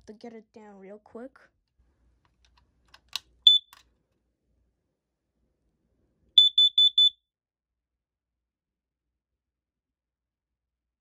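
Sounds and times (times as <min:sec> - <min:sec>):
short high alarm beeps: 0:03.5 - 0:03.7, 0:06.4 - 0:07.2
alarm click: 0:03.5 - 0:03.8.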